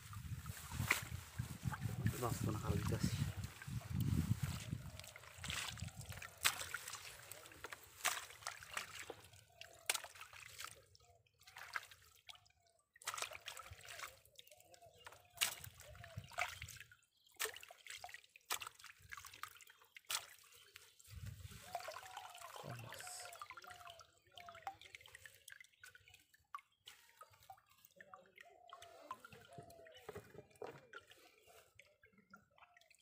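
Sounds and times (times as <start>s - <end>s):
water dripping: 0.1s - 33.0s
mud squelching: 0.2s - 12.4s, 13.0s - 31.8s.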